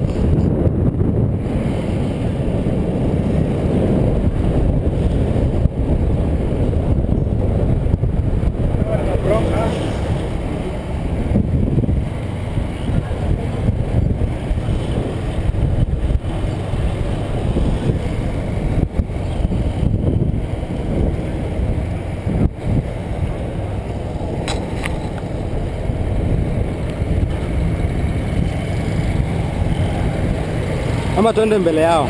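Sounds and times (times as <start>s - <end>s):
motorcycle engine running: 0.0s - 32.0s
road noise: 0.0s - 32.0s
wind noise on microphone: 0.0s - 32.0s.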